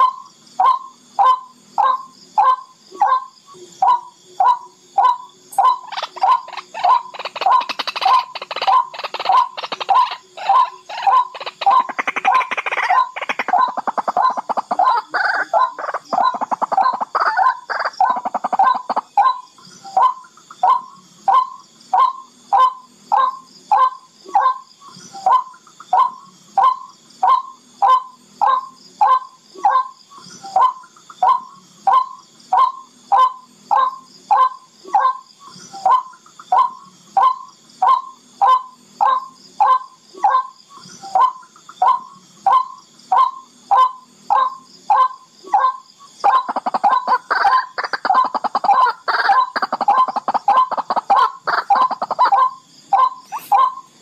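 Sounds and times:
bird calling: 0.0 - 54.0.

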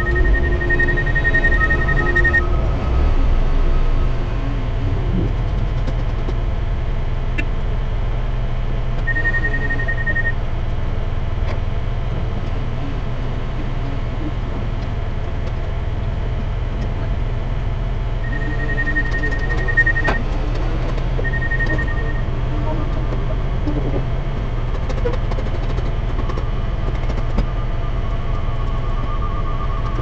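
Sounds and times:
high steady beeping tone: 0.0 - 4.7, 9.0 - 10.4, 18.2 - 23.1
heavy diesel machinery rumbling: 0.0 - 30.0.

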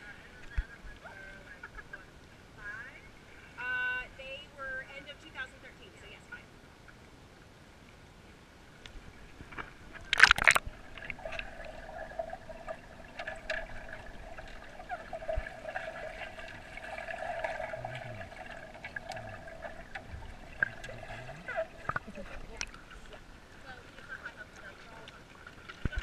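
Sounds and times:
faint underwater gurgling: 8.7 - 26.0
small ticks underwater: 8.8 - 23.2
muffled underwater hum: 9.0 - 25.1
splash into water: 10.0 - 22.7.

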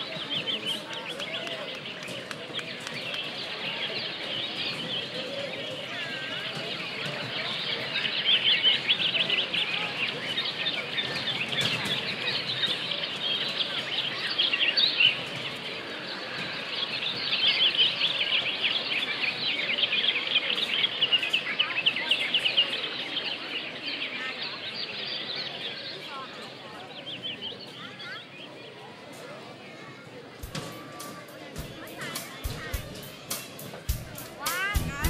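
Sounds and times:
crowd cheering: 0.0 - 20.6, 30.4 - 35.0.

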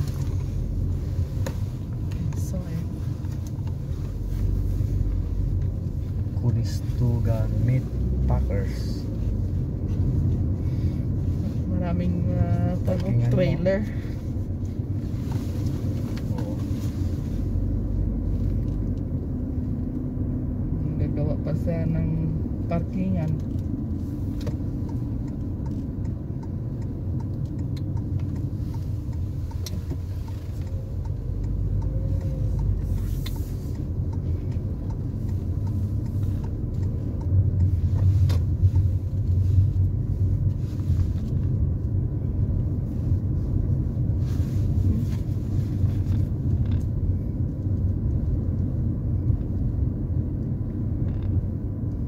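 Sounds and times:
car engine and tyres rumbling: 0.0 - 52.0.

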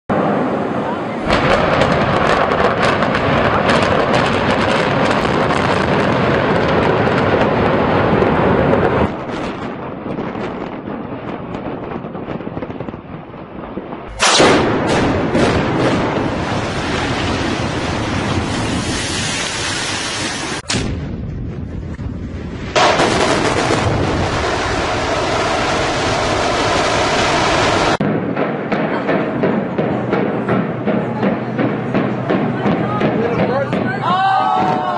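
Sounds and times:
loud blast: 0.1 - 12.9, 14.0 - 34.9
building collapse rumble: 0.1 - 34.9
demolition charges cracking: 1.2 - 11.1, 14.1 - 28.0.

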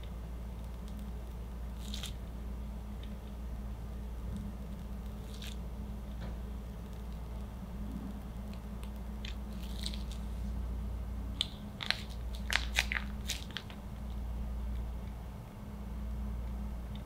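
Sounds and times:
low hum: 0.0 - 17.0
plastic piping bag crinkling: 1.7 - 2.2, 4.5 - 7.5, 8.1 - 10.5, 11.4 - 14.9.

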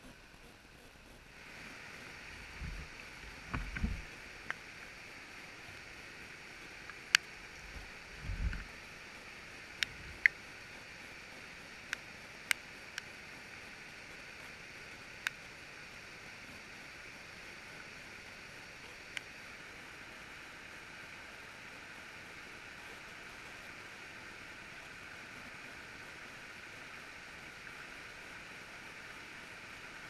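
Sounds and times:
rushing creek water: 1.3 - 30.0
low dull bumps: 2.5 - 4.1.

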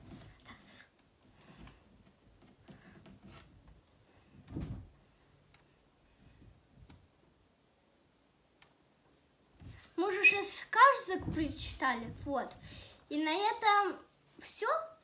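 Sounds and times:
soft thump: 4.5 - 5.0, 11.2 - 12.3.

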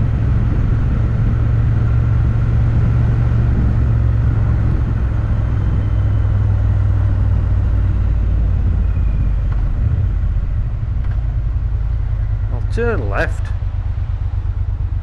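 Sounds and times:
wind and road noise: 0.0 - 15.0
motorcycle engine running: 6.8 - 15.0.

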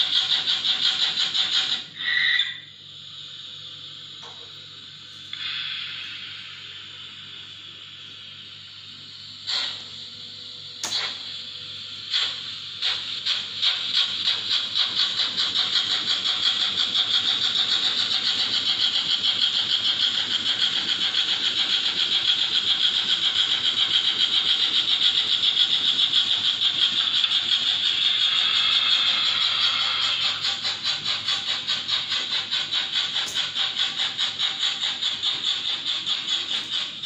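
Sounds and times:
model steam locomotive chuffing: 0.0 - 37.0
sharp click: 10.8 - 11.2.

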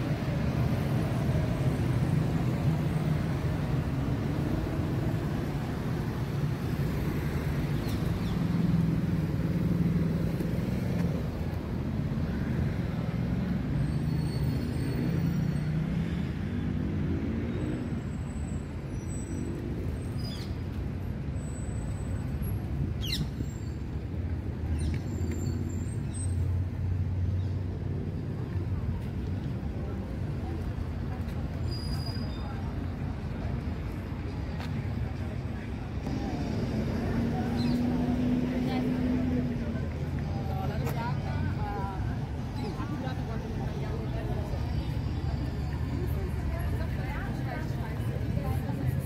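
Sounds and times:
city road traffic rumble: 0.0 - 49.0.

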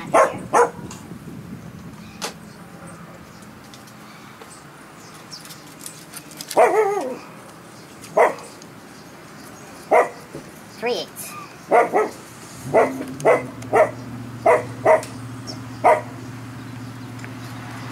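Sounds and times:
dog barking: 0.1 - 0.9, 6.6 - 7.2, 8.2 - 8.5, 9.9 - 10.3, 11.7 - 15.2, 15.8 - 16.2.

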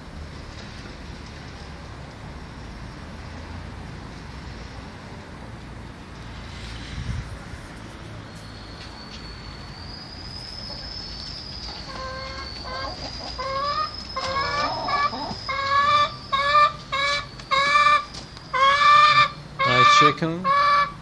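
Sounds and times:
hens clucking: 11.7 - 21.0.

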